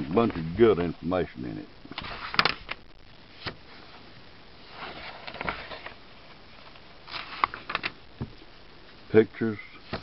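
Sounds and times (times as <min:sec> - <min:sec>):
pages rustling: 0:01.9 - 0:03.9, 0:04.6 - 0:08.0
paper pages flicking: 0:02.0 - 0:02.8, 0:07.1 - 0:08.0.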